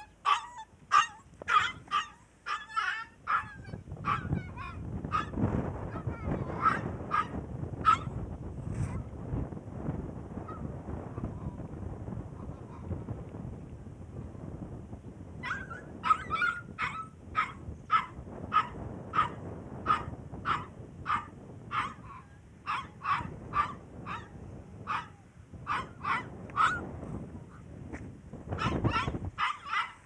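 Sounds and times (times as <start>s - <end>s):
puppy yapping: 0.0s - 7.3s, 7.9s - 8.2s, 15.4s - 24.3s, 24.9s - 26.9s, 28.6s - 30.0s.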